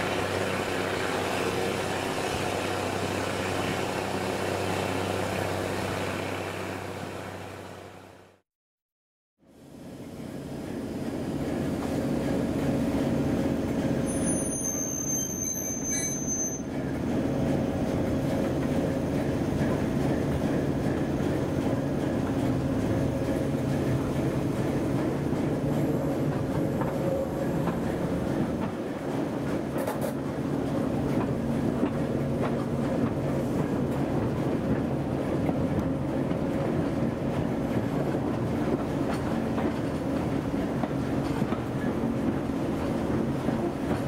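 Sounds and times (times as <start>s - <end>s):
diesel locomotive engine drone: 0.0s - 8.4s, 9.4s - 44.0s
train rail running noise: 0.0s - 8.4s, 9.5s - 44.0s.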